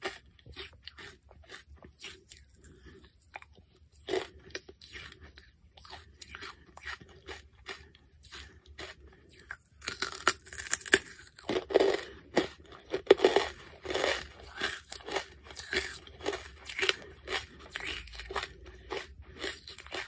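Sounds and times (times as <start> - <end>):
charcoal crunching in mouth: 0.0 - 20.0.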